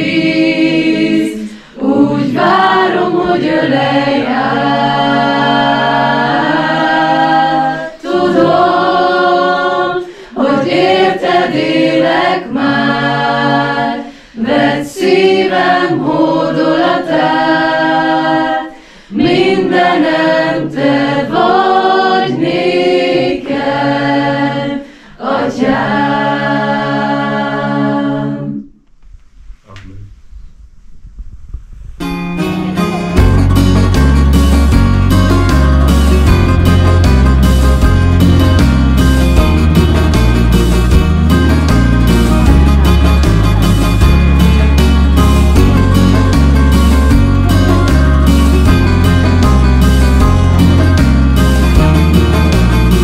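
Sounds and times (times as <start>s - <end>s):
group singing a cappella: 0.0s - 28.8s
faint room sound: 28.3s - 33.1s.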